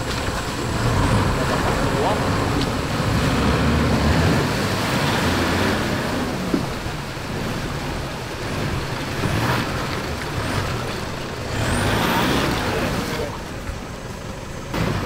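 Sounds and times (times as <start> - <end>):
diesel engine under load: 0.0 - 15.0.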